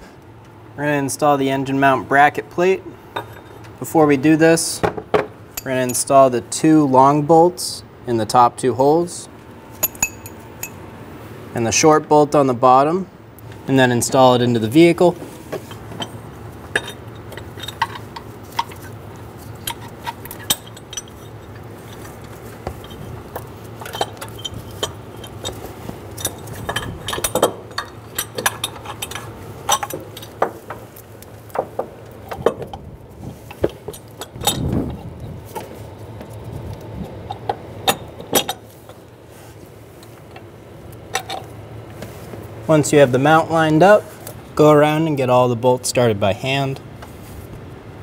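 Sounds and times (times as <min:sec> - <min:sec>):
metallic clinks and knocks: 0:09.8 - 0:10.8, 0:15.6 - 0:32.8, 0:33.4 - 0:36.4.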